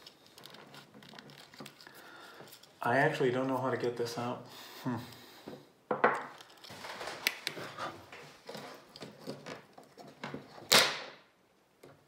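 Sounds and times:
plastic scraping rubs: 0:00.0 - 0:02.8.

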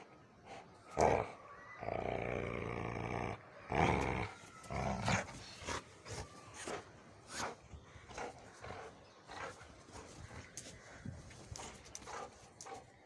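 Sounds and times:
dog play-growling: 0:01.0 - 0:10.1.

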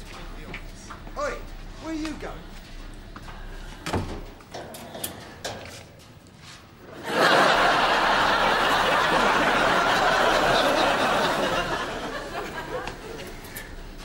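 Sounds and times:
studio audience laughing: 0:06.9 - 0:13.6.

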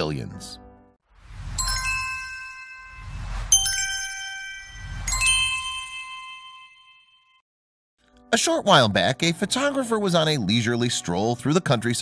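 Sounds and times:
low whooshing rumble: 0:01.1 - 0:05.6
bright chime dings: 0:01.6 - 0:07.4.

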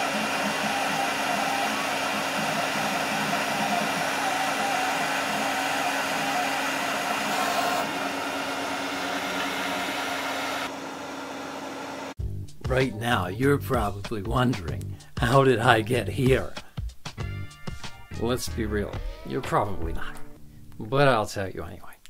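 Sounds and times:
motor hum wavering: 0:00.0 - 0:12.2
printer fans whirring: 0:00.0 - 0:12.2.

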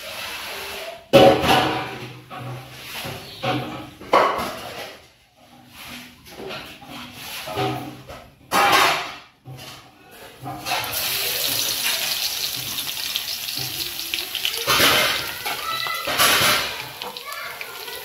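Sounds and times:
hot oil sizzling: 0:10.5 - 0:18.0.

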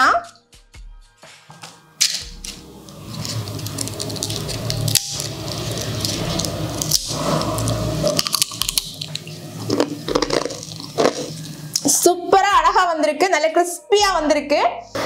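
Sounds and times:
fried cookie crackling and snapping: 0:02.0 - 0:12.0.

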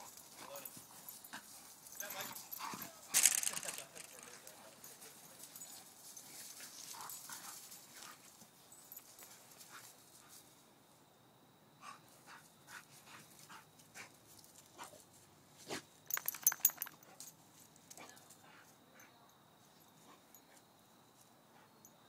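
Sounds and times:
dogs scuffling on grass: 0:00.0 - 0:10.6.

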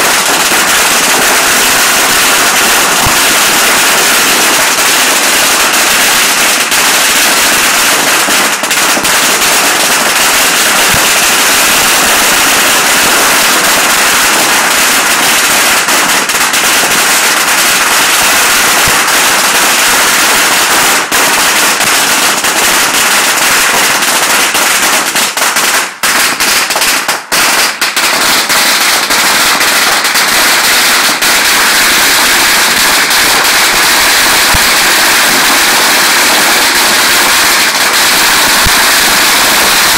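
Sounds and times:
firecrackers crackling: 0:00.0 - 0:39.9.

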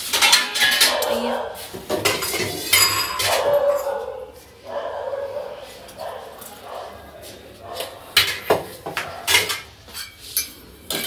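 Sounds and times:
steel utensils clinking: 0:00.0 - 0:04.0, 0:07.8 - 0:11.0.

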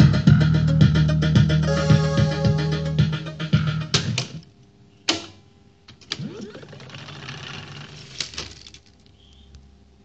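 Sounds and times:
guitar music from tape: 0:00.0 - 0:04.2.

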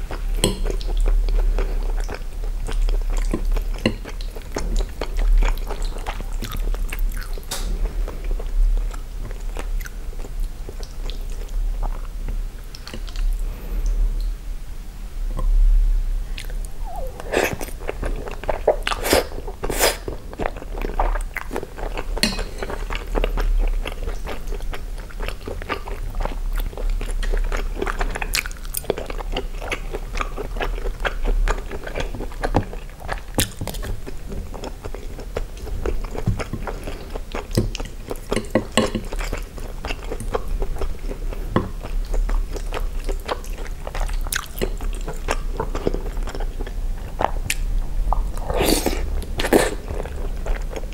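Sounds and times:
wet chewing: 0:16.4 - 0:50.9.

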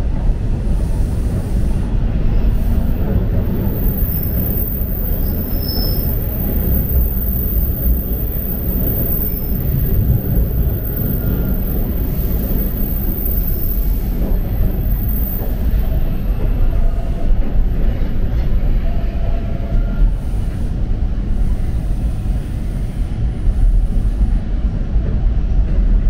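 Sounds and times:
subway train wheels rumbling on rails: 0:00.0 - 0:26.0
faint high squeal: 0:03.7 - 0:14.0.

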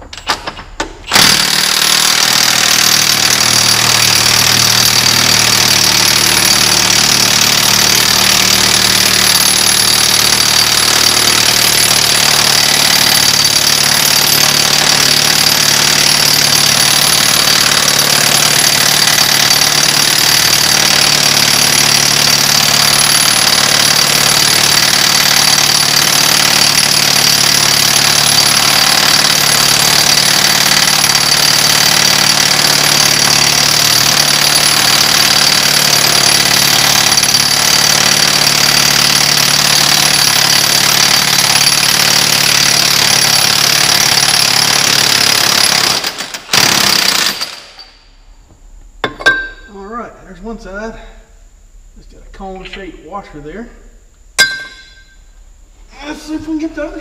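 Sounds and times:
impact wrench hammering: 0:00.0 - 0:49.7, 0:54.4 - 0:55.4.

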